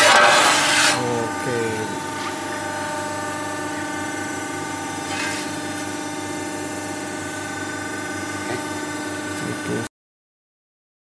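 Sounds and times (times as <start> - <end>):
metal tray scraping: 0.0 - 2.7, 5.0 - 5.6
pump motor humming: 0.0 - 9.9.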